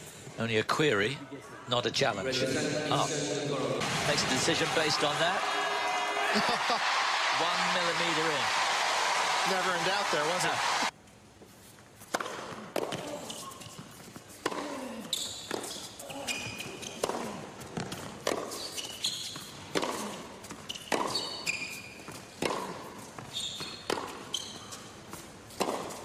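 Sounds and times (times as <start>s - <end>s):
shoes squeaking on court: 11.4s - 26.0s
racket hitting tennis ball: 12.0s - 13.5s, 14.4s - 14.8s, 16.8s - 21.5s, 22.1s - 24.4s, 25.1s - 26.0s.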